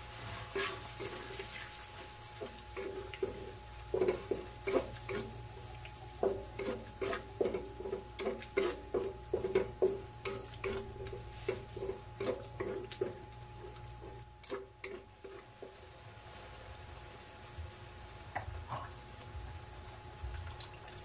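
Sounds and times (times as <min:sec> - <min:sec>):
utensil knocking in pan: 0:02.4 - 0:05.3, 0:06.2 - 0:15.8.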